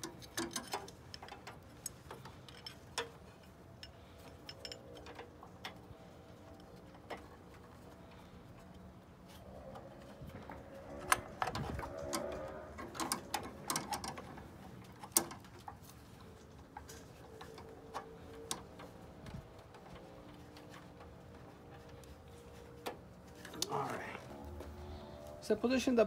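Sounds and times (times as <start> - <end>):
wrenches clinking: 0.0 - 8.8, 9.4 - 21.0.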